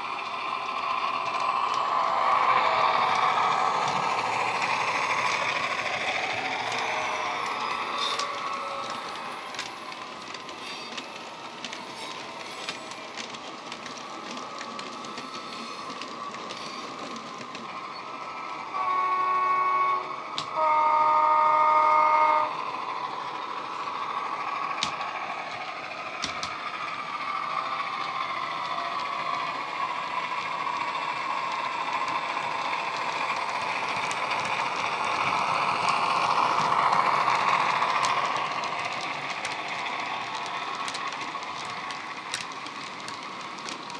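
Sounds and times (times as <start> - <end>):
train horn blasts: 18.7 - 22.6.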